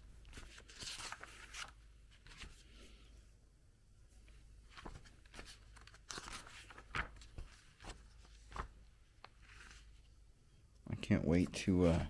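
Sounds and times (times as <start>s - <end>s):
paper pages turning: 0.2s - 2.7s, 4.7s - 10.1s.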